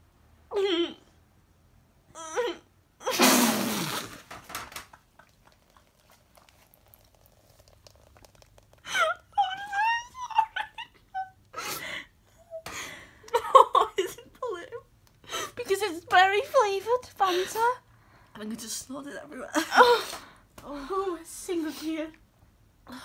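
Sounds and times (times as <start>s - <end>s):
woman sobbing into a tissue: 8.8s - 14.7s, 19.5s - 20.9s
woman whimpering: 8.9s - 10.7s.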